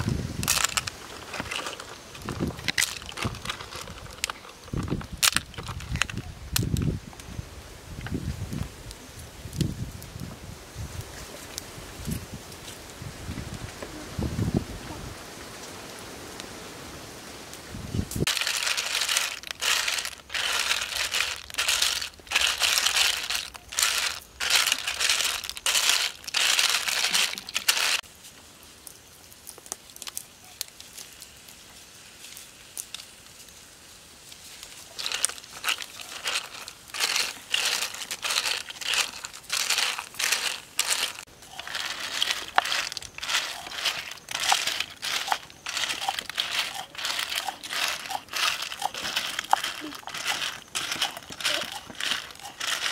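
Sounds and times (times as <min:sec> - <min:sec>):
clam shells clattering in a wok: 0:18.3 - 0:28.0, 0:35.0 - 0:52.9.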